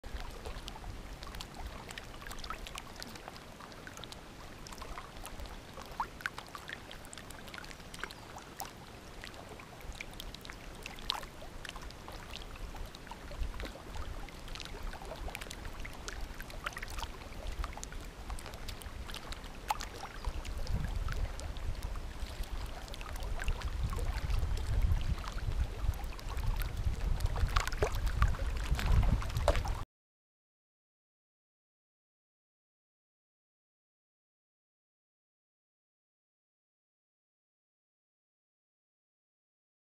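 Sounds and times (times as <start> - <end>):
water lapping against canoe hull: 0.0 - 29.8
wind buffeting microphone: 20.2 - 29.8.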